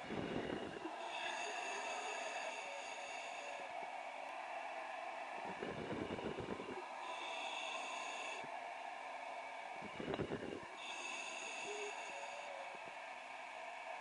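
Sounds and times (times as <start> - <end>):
short breath-like rush: 0.0 - 9.2, 9.8 - 13.8
faint steady tones: 0.0 - 14.0
communication line hiss: 9.8 - 14.0.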